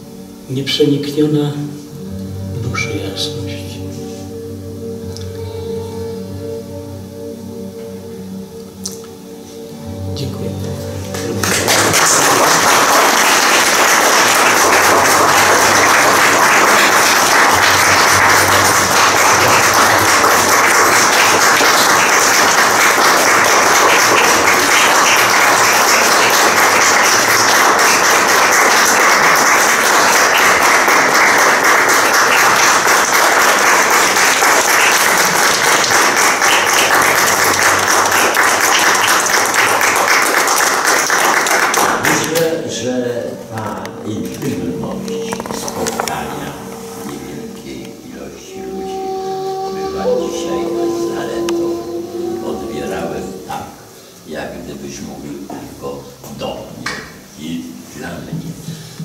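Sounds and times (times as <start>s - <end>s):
audience applause: 11.1s - 42.4s.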